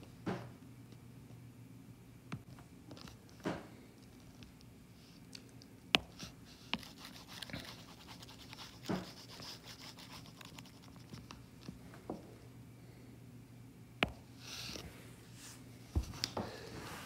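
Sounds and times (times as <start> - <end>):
faint low hum: 0.0 - 17.0
stylus rubbing on screen: 6.1 - 11.3.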